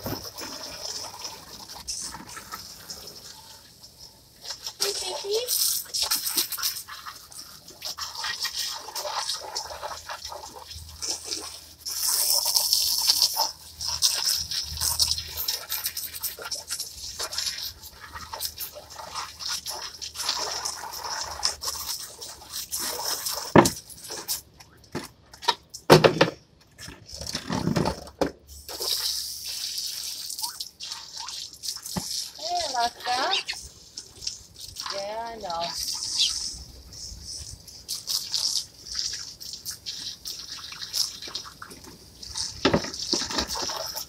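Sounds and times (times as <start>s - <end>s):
hose spray nozzle hissing: 31.6s - 41.1s.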